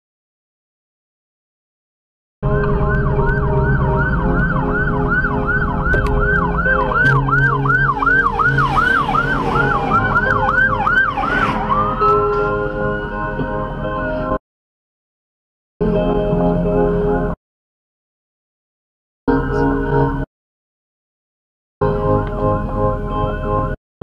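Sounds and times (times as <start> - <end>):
siren rising wail: 2.4 - 13.3
police siren yelping: 2.5 - 13.1.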